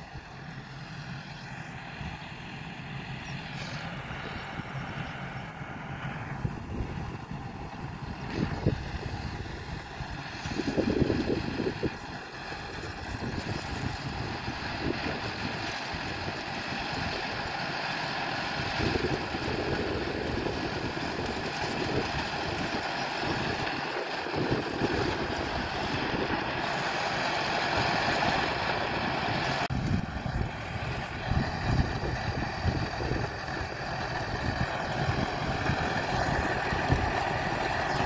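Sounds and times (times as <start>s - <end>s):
tractor engine running: 0.0s - 38.0s
wind buffeting microphone: 6.4s - 17.4s, 18.6s - 26.8s, 27.6s - 38.0s.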